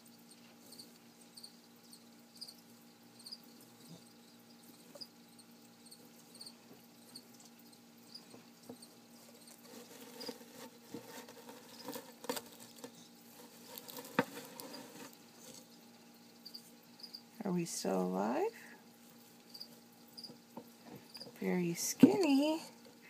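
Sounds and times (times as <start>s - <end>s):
cricket chirping: 0.0s - 9.6s, 14.4s - 17.4s, 18.8s - 21.4s.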